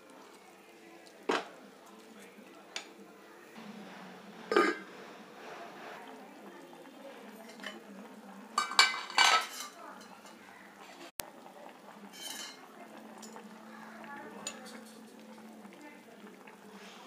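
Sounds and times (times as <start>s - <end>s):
metal lid clanking on clay pot: 4.5s - 4.9s, 8.6s - 9.8s.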